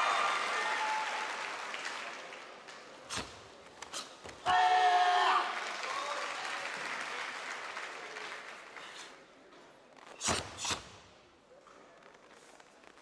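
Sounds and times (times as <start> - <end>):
crowd applause: 0.0 - 2.8, 5.4 - 9.0.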